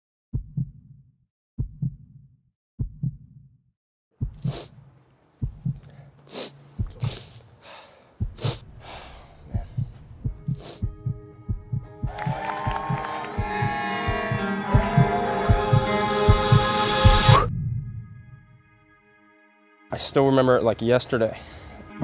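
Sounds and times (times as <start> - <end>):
heartbeat thumps: 0.3 - 1.0, 1.6 - 2.2, 2.8 - 3.4, 4.2 - 4.8, 5.4 - 5.9, 6.7 - 7.4, 8.2 - 18.4
swell of noise: 12.1 - 18.4.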